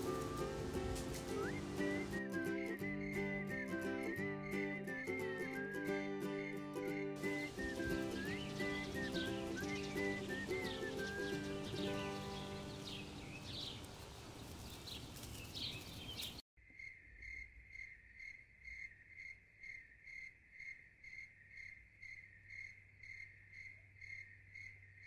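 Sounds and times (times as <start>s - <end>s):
cricket chirping: 1.5s - 4.8s, 16.6s - 25.0s.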